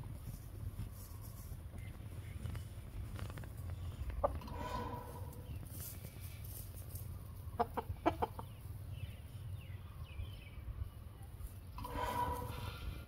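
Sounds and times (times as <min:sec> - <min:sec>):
rooster clucking: 0:07.5 - 0:08.6.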